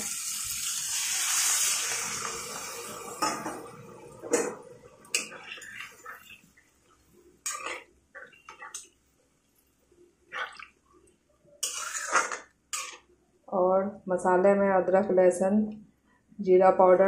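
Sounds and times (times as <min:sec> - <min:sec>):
water hissing in hot pan: 0:00.0 - 0:07.0
metal spatula scraping pan: 0:04.3 - 0:06.6, 0:07.4 - 0:08.9, 0:11.6 - 0:13.0.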